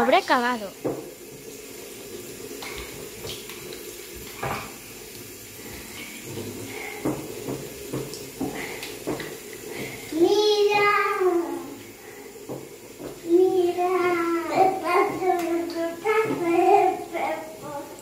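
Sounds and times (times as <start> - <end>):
tap water running into basin: 0.0 - 18.0
child's voice: 10.1 - 11.8, 13.2 - 18.0.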